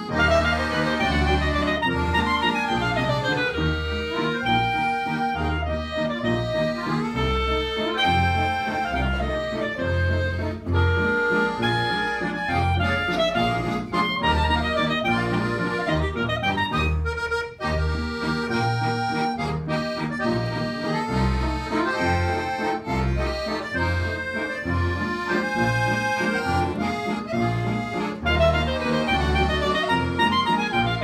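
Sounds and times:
accordion: 0.0 - 31.0
clarinet: 0.0 - 31.0
plucked double bass: 0.0 - 31.0.

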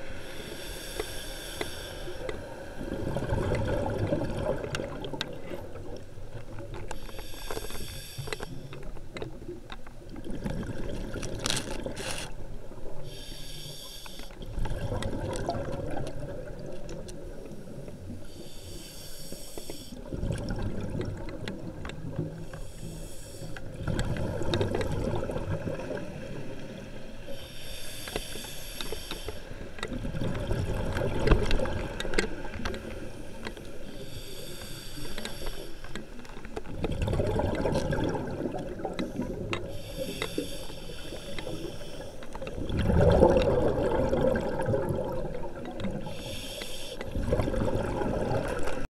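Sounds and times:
regulator breathing hiss: 0.1 - 2.8, 7.0 - 8.8, 13.0 - 14.4, 18.2 - 20.0, 22.4 - 23.7, 27.2 - 29.6, 33.1 - 36.1, 39.0 - 42.3, 46.0 - 47.2
bubbling rumble underwater: 2.8 - 6.8, 9.5 - 11.5, 14.4 - 17.6, 20.0 - 22.4, 23.7 - 26.8, 29.9 - 32.7, 36.7 - 39.6, 42.4 - 46.1, 47.1 - 48.9.

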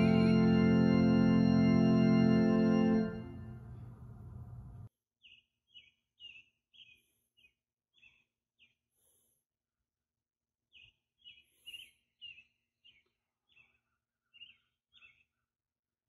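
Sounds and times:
organ chord echoing: 0.0 - 4.2
bird chirping: 0.0 - 8.8, 10.7 - 15.3.

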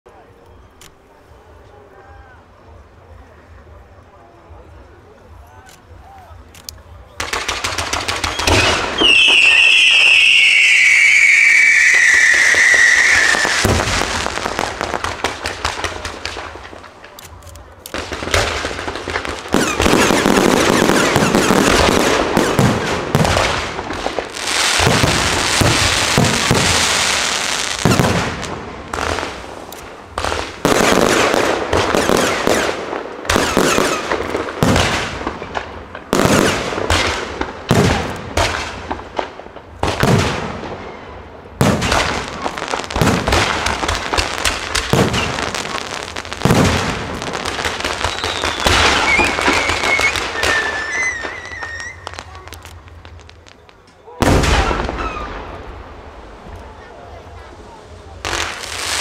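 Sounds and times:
fireworks launching and bursting: 6.3 - 59.0.

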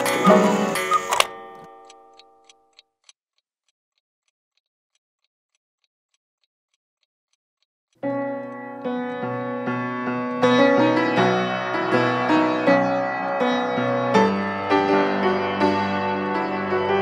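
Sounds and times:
faint clock ticking: 0.0 - 8.6
loud crashing piano chord: 8.7 - 17.0.

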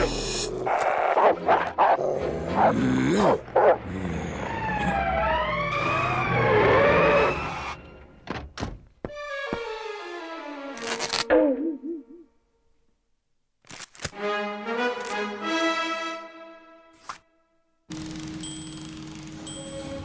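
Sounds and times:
music: 9.0 - 12.7, 14.1 - 20.0.

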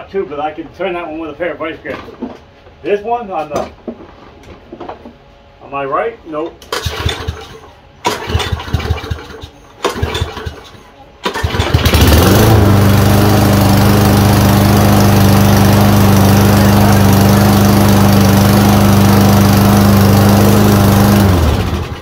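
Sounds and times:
lawn mower engine running: 6.6 - 22.0.

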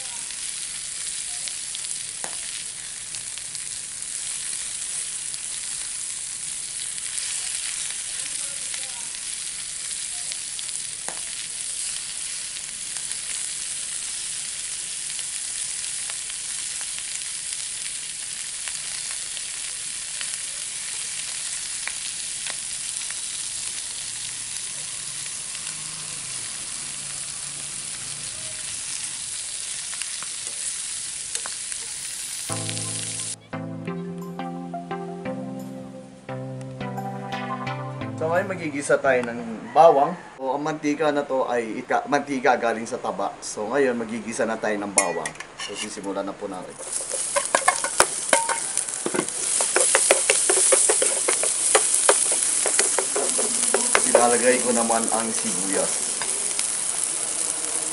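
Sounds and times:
meat sizzling in hot oil: 0.0 - 33.4, 46.0 - 57.9.

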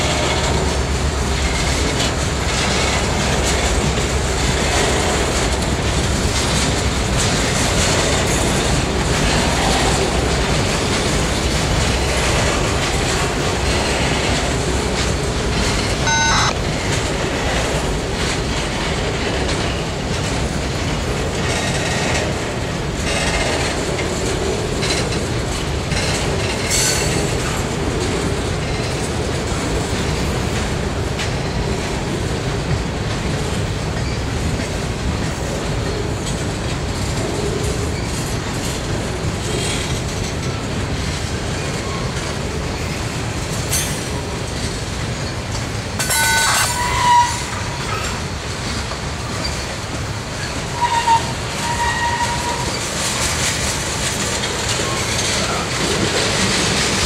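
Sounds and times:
train wheels rumbling on rail: 0.0 - 57.0
wheels clacking over rail joints: 0.0 - 57.0
wheel squeals: 50.4 - 53.3.

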